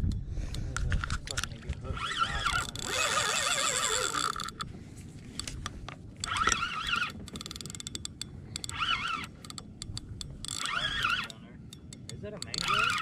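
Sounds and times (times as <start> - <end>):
fishing reel gear whine: 1.8 - 4.8, 6.2 - 13.0.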